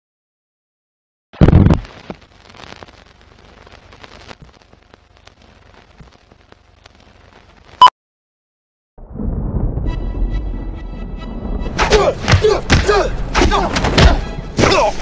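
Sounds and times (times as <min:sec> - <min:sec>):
old film crackle with clicks: 0:01.6 - 0:07.8.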